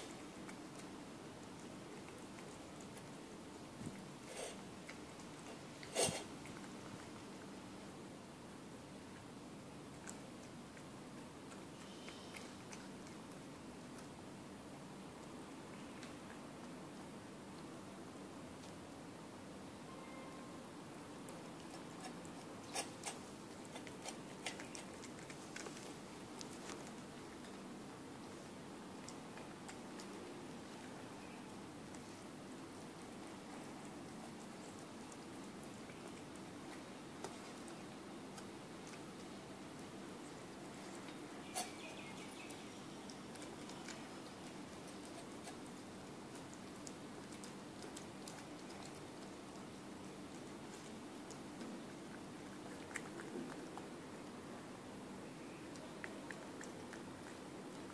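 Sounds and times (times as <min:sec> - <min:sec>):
cat eating from metal bowl: 0:00.0 - 0:08.0, 0:21.1 - 0:54.8, 0:55.6 - 0:57.9.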